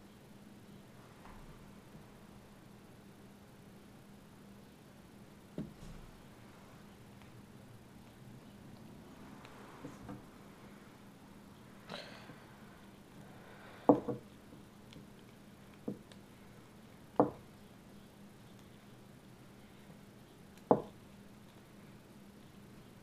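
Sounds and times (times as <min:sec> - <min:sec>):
slingshot handling knocks and taps: 0:13.9 - 0:14.6, 0:20.6 - 0:21.0.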